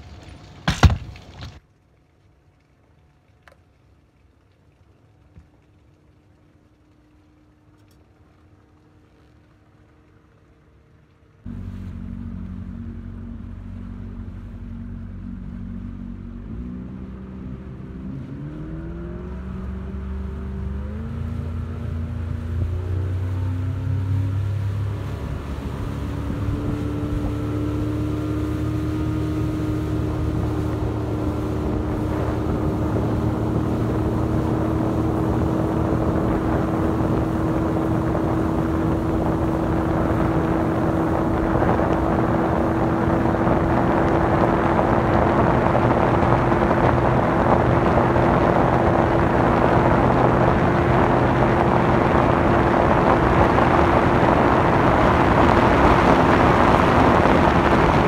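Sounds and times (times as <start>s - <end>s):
outboard motor running: 3.0s - 18.2s, 18.8s - 58.0s
wind on microphone: 19.3s - 58.0s.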